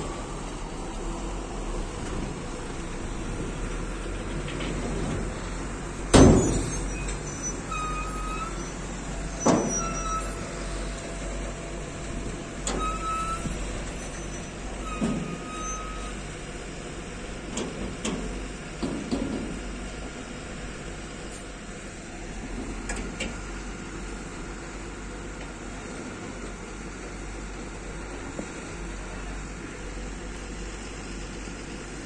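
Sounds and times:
crane diesel engine running: 0.0 - 32.0
sharp bangs and knocks: 6.1 - 7.2.

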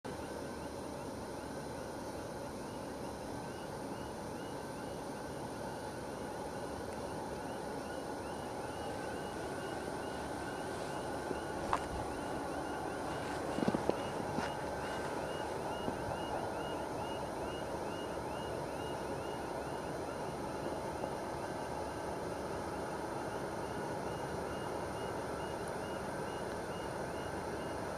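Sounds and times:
faint high chirp: 2.2 - 22.1.

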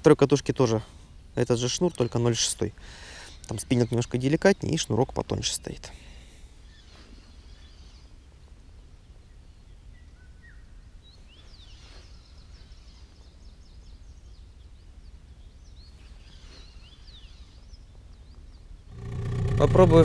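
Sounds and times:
low steady outdoor rumble: 0.0 - 11.5, 12.3 - 20.0
small birds chirping: 0.0 - 20.0.

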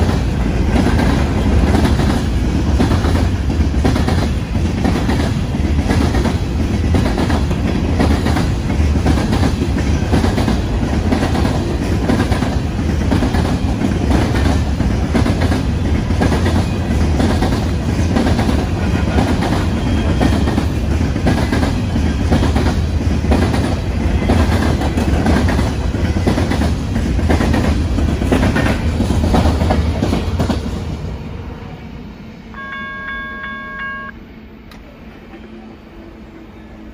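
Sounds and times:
low train rumble: 0.0 - 36.9
train horn: 32.6 - 34.1.

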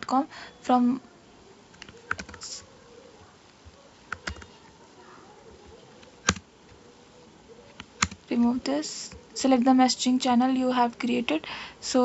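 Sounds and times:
computer keyboard and mouse clicks: 1.7 - 2.7, 4.1 - 4.6, 6.0 - 6.5, 7.7 - 8.2.

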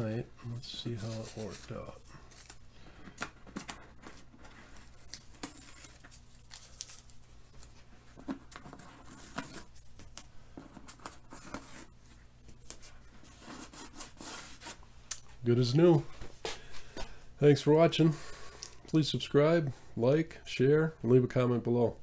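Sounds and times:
tape peeling and crinkling: 0.8 - 10.3.

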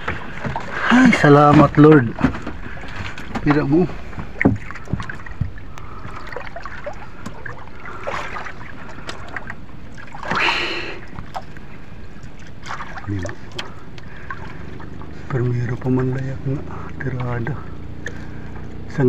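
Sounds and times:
water sloshing against hull: 0.0 - 19.0
loud splash: 6.0 - 11.4.

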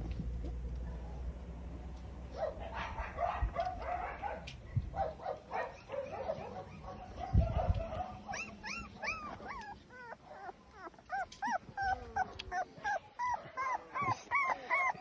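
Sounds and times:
puppies whimpering and squealing: 6.6 - 15.0.

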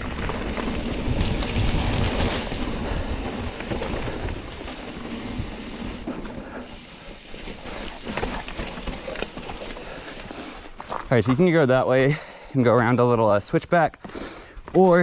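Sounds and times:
bike tyres on dirt: 0.0 - 15.0
bike knocks and rattles: 7.5 - 10.2.

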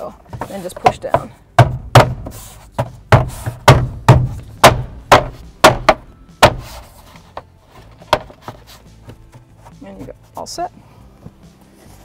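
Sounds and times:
hands thumping plastic panel: 0.3 - 6.8, 7.4 - 8.6.

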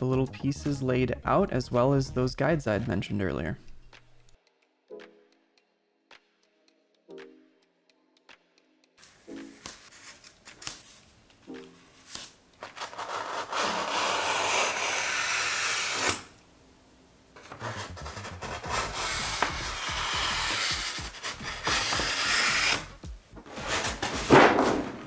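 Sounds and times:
faint background music: 0.0 - 13.6
utility knife cutting a sheet: 12.7 - 16.3, 17.8 - 22.9.

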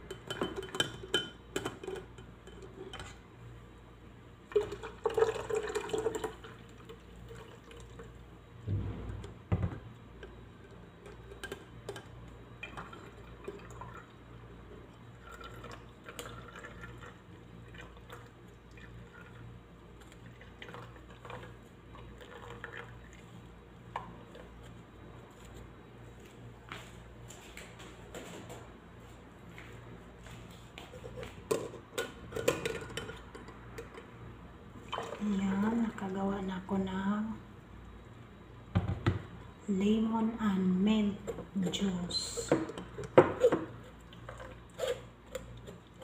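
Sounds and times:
juice pouring and splashing: 4.5 - 8.2, 12.6 - 14.2, 15.0 - 23.4, 43.8 - 46.0.

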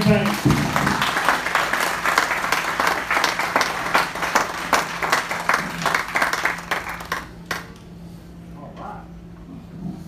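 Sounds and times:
crowd applause: 0.0 - 7.8.

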